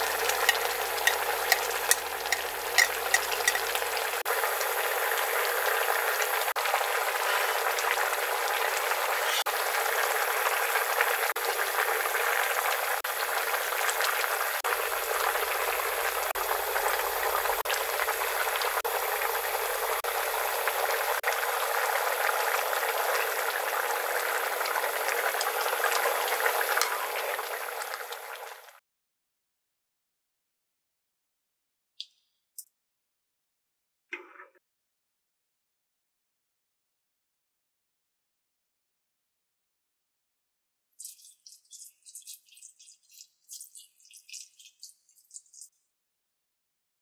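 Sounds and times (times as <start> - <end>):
stew boiling in a pot: 0.0 - 28.8.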